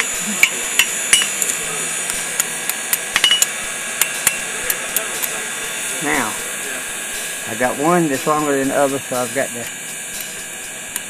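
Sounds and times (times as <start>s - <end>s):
hammer ringing on anvil: 0.0s - 1.4s, 3.2s - 5.1s.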